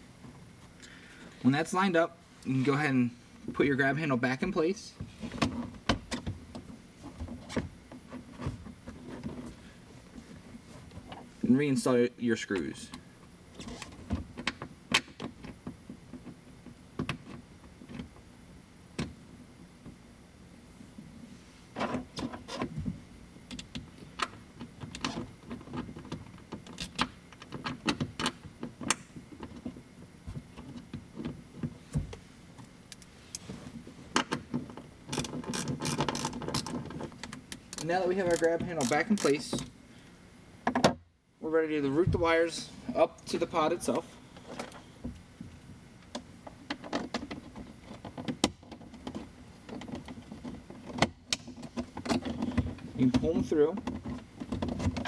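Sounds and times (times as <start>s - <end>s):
wiring and plastic trim rustling: 3.4s - 11.6s, 21.7s - 39.8s, 41.6s - 55.0s.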